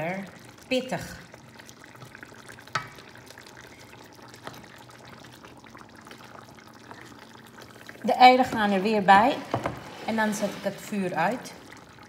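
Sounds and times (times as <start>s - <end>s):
spoon stirring food in a pan: 1.8s - 3.4s.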